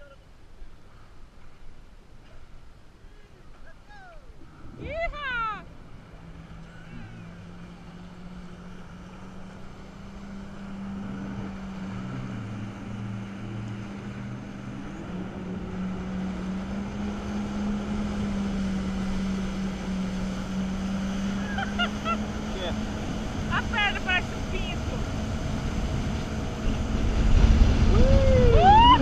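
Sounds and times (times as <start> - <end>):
jet ski engine running: 0.0 - 29.0
rushing water and wind: 0.0 - 29.0.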